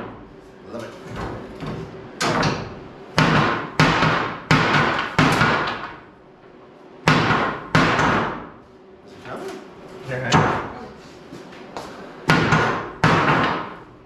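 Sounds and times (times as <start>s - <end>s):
hammer striking wooden boards: 2.2s - 6.0s, 7.0s - 8.5s, 12.3s - 13.8s.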